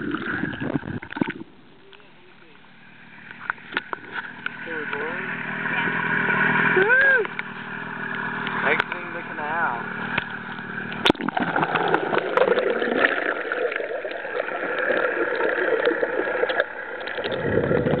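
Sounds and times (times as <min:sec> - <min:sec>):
water rushing and splashing: 0:00.0 - 0:01.6, 0:02.8 - 0:18.0.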